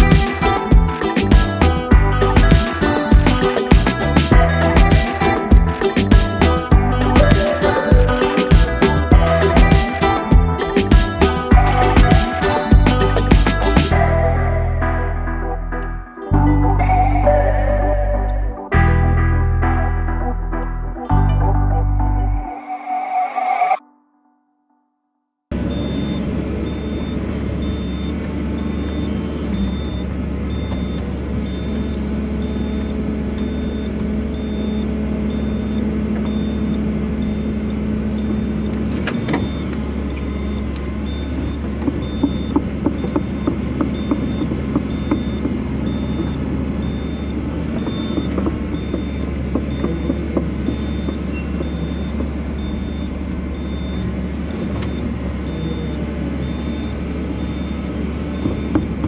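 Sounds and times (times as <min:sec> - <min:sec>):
high beeps: 0:00.0 - 0:18.6, 0:39.4 - 0:54.1, 0:54.9 - 0:59.0
excavator engine running: 0:00.0 - 0:22.4, 0:25.6 - 0:59.0.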